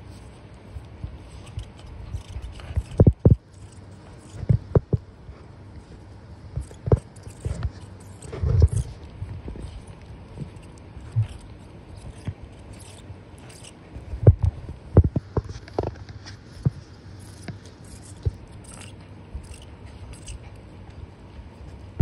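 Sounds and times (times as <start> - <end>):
dog chewing on sneaker: 0.0 - 22.0.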